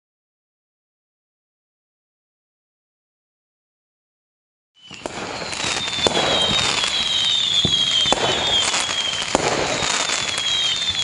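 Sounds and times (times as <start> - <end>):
descending firework whistles: 4.8 - 11.0
firework bangs: 4.8 - 11.0
fireworks crackling: 4.8 - 11.0.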